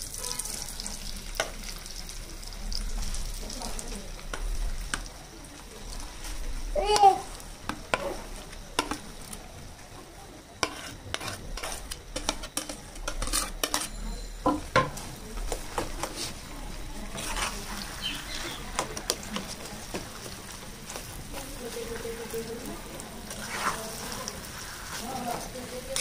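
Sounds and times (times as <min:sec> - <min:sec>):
frying sizzle: 0:00.0 - 0:26.0
spoon scraping a plate and pan: 0:08.8 - 0:09.1, 0:10.6 - 0:16.4, 0:17.0 - 0:19.6, 0:23.3 - 0:25.1.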